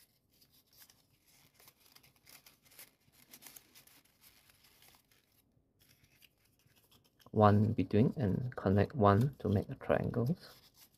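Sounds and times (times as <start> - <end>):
paper rustling and crinkling: 0.0 - 10.9.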